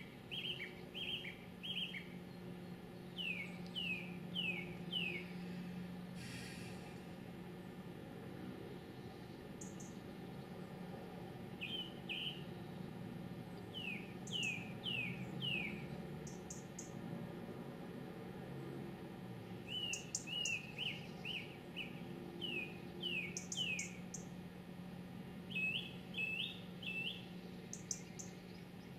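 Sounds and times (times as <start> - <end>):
songbird singing: 0.0 - 5.8, 8.8 - 10.8, 11.5 - 17.0, 19.4 - 24.4, 25.4 - 28.9.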